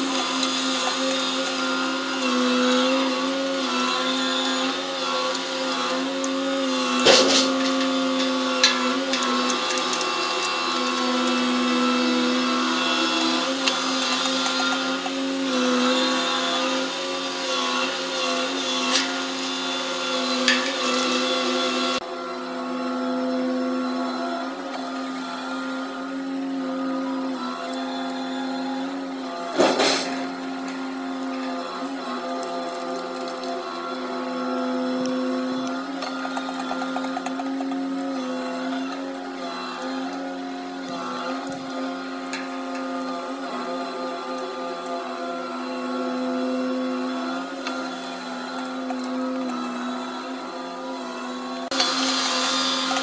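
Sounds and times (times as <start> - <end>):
crane engine and winch hum: 0.0 - 53.0.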